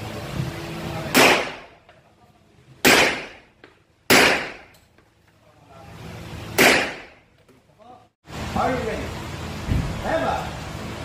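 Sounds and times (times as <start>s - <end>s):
pistol shots with echo: 1.1s - 1.8s, 2.8s - 3.5s, 4.1s - 4.7s, 6.6s - 7.2s.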